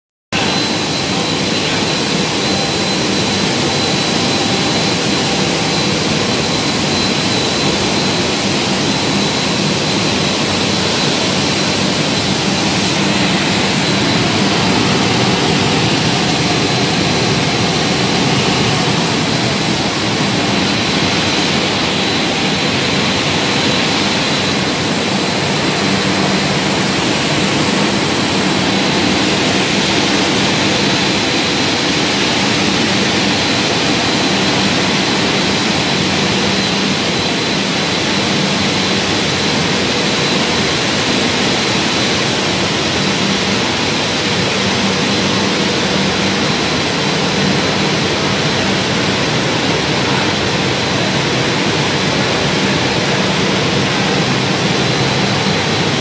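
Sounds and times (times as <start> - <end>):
loud machine noise: 0.3 - 56.0
high machine whine: 0.4 - 56.0.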